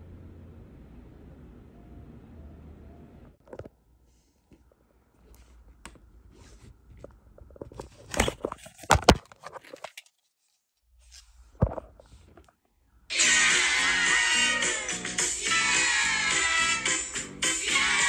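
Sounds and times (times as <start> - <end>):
plastic case rustling: 5.3 - 10.2, 11.2 - 12.6.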